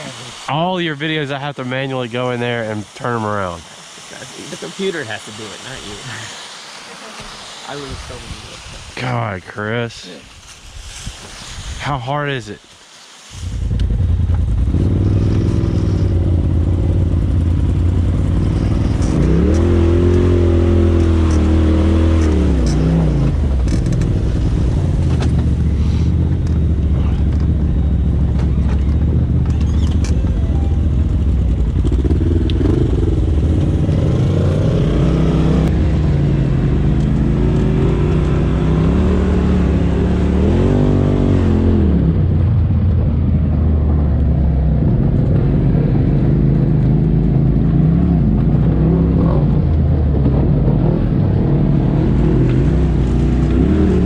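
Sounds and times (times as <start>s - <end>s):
engine revving: 13.4s - 54.0s.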